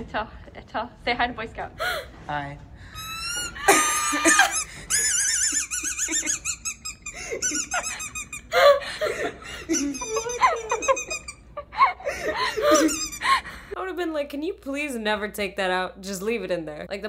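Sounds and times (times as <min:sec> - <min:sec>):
boy laughing with squeaks: 0:02.9 - 0:13.4
people laughing: 0:03.3 - 0:13.4.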